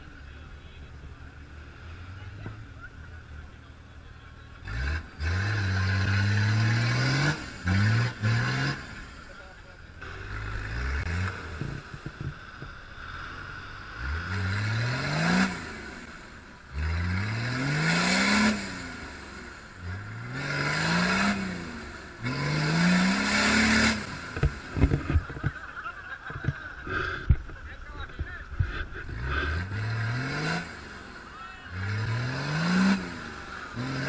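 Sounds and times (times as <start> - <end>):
wheels spraying mud: 0.0 - 34.0
engine revving hard: 4.5 - 9.4, 10.0 - 12.0, 13.1 - 25.3, 28.6 - 34.0.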